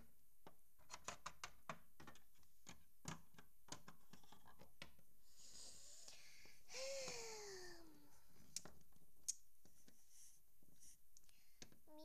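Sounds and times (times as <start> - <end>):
plastic toys clicking and tapping: 0.4 - 5.0
soft breathy hiss: 5.2 - 8.7, 9.3 - 12.0.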